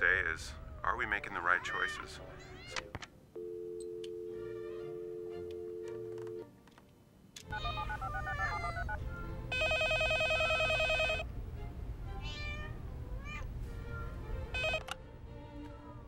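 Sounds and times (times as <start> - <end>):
cats meowing: 1.6 - 2.9, 7.5 - 9.0, 12.2 - 13.5
low steady hum: 3.2 - 16.0
telephone ringing: 3.4 - 6.4, 7.5 - 11.3, 14.5 - 15.0.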